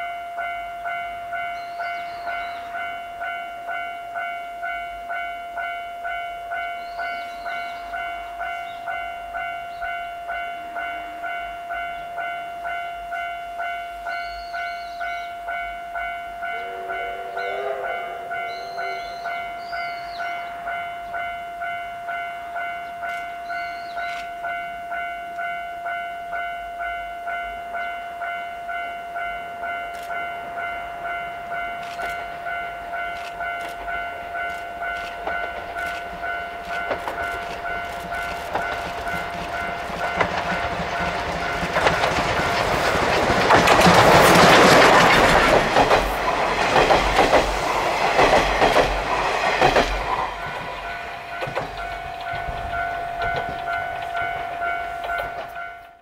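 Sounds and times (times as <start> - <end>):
level crossing bell ringing: 0.0 - 42.5, 48.7 - 56.0
steam locomotive exhaust beats: 0.0 - 56.0
train wheel clatter: 29.9 - 56.0.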